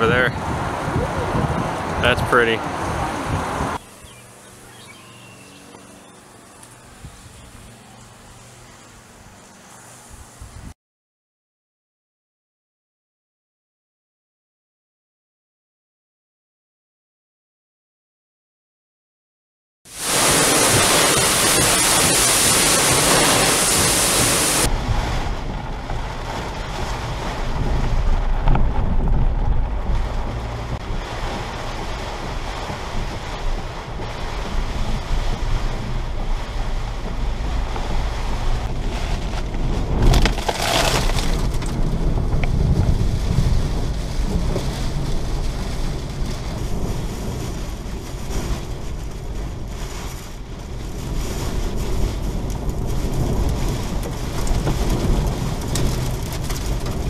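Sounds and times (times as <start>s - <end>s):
rain and wind against vehicle: 0.0s - 10.8s, 19.9s - 57.0s
wind hiss on microphone: 6.6s - 10.8s, 19.9s - 30.2s
steady low rumble: 23.6s - 57.0s.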